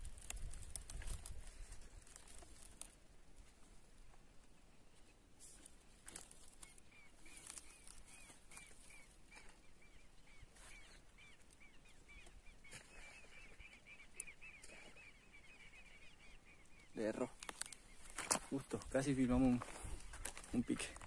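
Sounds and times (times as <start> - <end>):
soft rustles and clicks: 0.0 - 9.6, 17.4 - 21.0.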